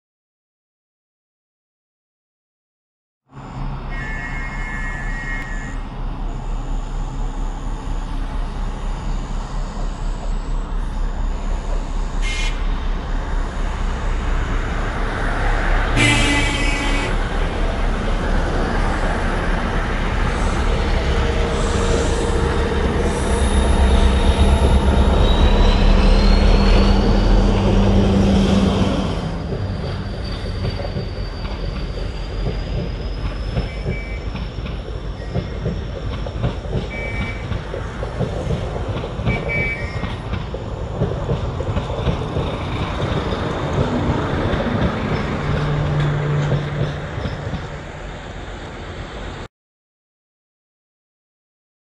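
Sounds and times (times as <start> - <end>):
high wheel squeal: 3.3 - 17.4, 18.4 - 38.5, 39.2 - 40.4
locomotive engine rumble: 3.4 - 49.4
train wheels rumbling on rail: 3.4 - 49.5.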